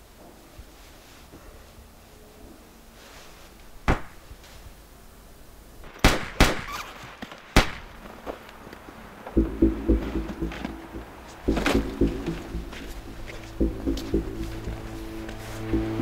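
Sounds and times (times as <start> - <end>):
gunshots: 5.8 - 8.0.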